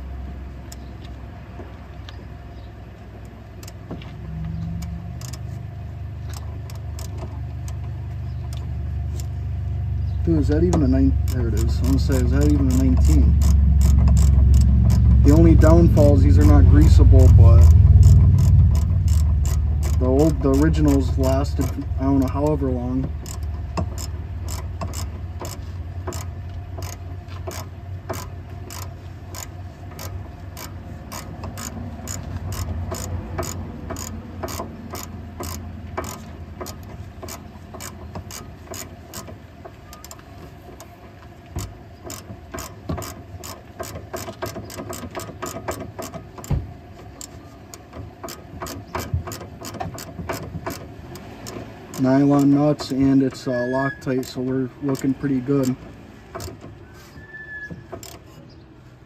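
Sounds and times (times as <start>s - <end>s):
low hum: 2.0s - 38.8s
hand ratchet clicking: 4.8s - 5.5s, 6.2s - 7.8s, 10.3s - 56.8s, 57.9s - 58.4s.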